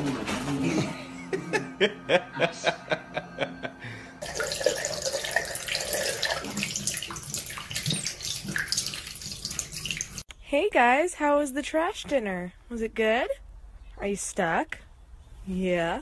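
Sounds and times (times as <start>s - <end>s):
tap water splashing into sink: 4.2s - 10.2s.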